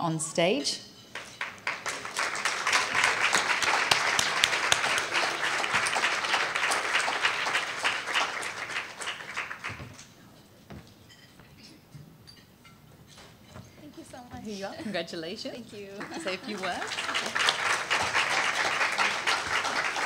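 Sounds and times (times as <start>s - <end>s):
audience applauding: 1.2s - 10.0s, 16.0s - 20.0s.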